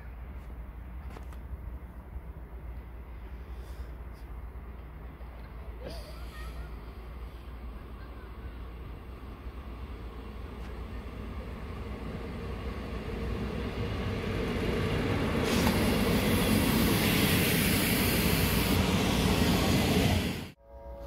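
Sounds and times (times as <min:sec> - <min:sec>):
diesel train engine rumble: 0:00.0 - 0:21.0
rushing hiss: 0:15.3 - 0:19.0.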